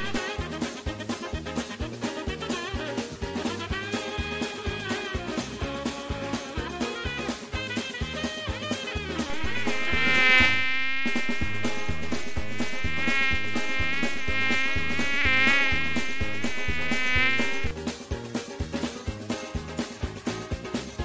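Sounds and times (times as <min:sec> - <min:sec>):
insect-like buzzing drone: 0:00.0 - 0:00.2, 0:09.2 - 0:17.7
music with drum and bass beat: 0:00.0 - 0:21.0.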